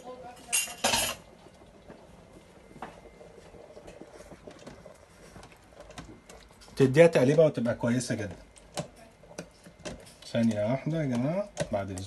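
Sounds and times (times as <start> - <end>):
utensil clicking against pot: 8.5 - 12.0.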